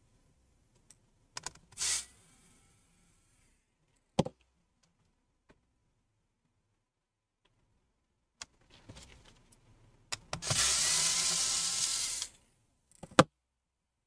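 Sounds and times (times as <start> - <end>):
electric screwdriver running: 10.4 - 12.4.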